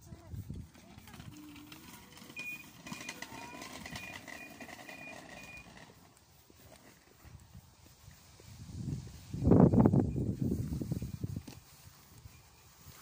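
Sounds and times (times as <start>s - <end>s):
short high-pitched beeps: 2.4s - 5.7s.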